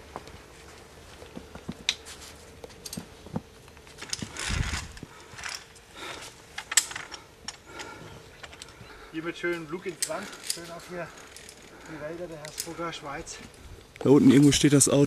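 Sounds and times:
carabiners clinking on steel cable: 3.8 - 13.6.

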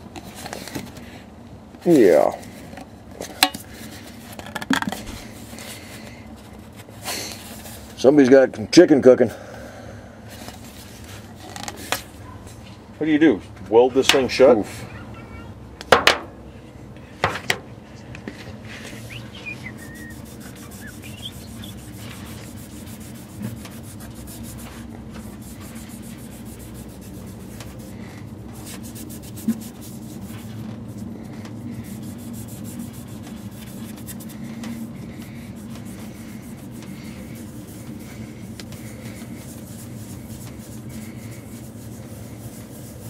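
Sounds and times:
cloth rubbing metal cover: 18.8 - 43.0.

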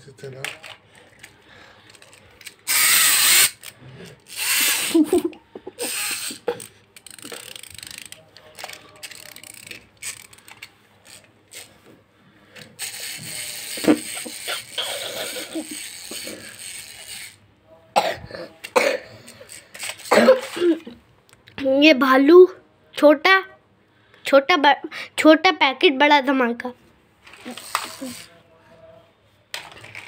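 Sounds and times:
toy whirring: 0.3 - 11.8, 12.6 - 17.4, 18.6 - 20.8, 27.2 - 28.4
clockwork gears clicking: 2.4 - 5.1, 5.8 - 11.7, 12.8 - 17.4, 27.4 - 28.3.

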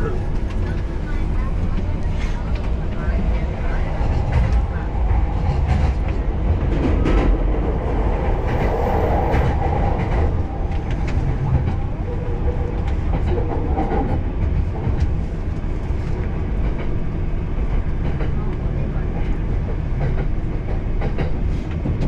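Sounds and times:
train rumble inside carriage: 0.0 - 22.0.

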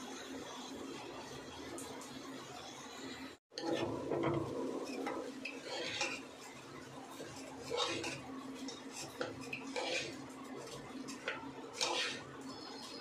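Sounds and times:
metal spoon scraping a pot: 3.5 - 13.0.

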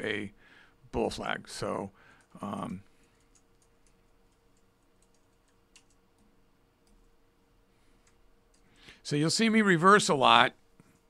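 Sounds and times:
faint keyboard clicking: 2.1 - 7.2, 7.9 - 9.0.

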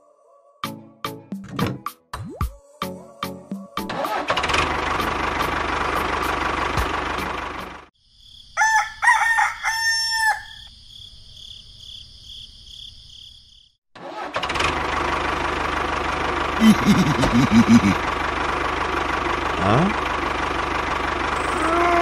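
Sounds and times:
engine running: 3.9 - 7.9, 14.0 - 22.0
rooster crowing: 8.5 - 10.7.

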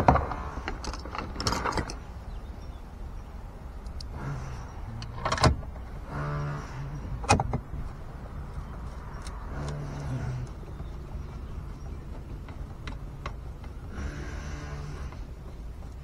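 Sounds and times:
sharp clicks and knocks: 0.0 - 2.0, 7.2 - 16.0.

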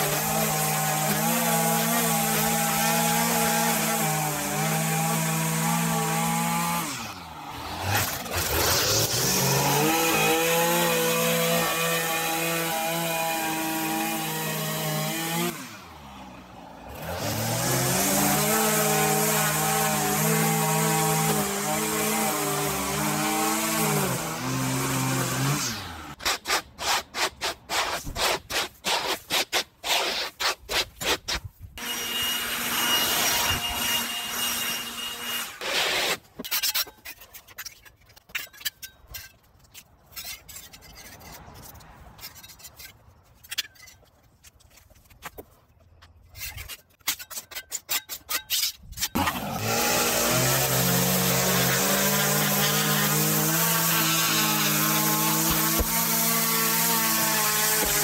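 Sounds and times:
metal scraper scraping concrete: 0.0 - 16.0, 17.2 - 45.4, 46.1 - 58.0
string trimmer running: 0.0 - 26.2, 49.2 - 58.0.

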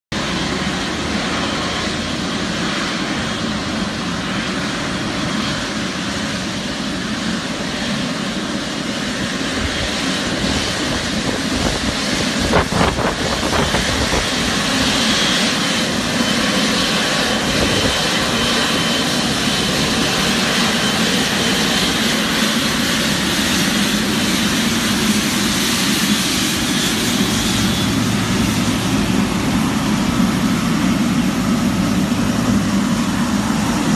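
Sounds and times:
jet engines idling: 0.2 - 33.9.

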